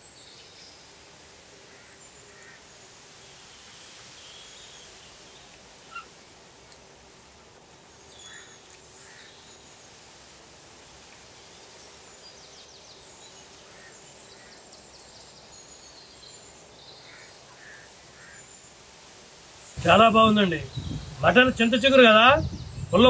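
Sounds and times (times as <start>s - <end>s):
high bird chirps: 5.9s - 6.1s
rattling bird trills: 5.9s - 6.1s.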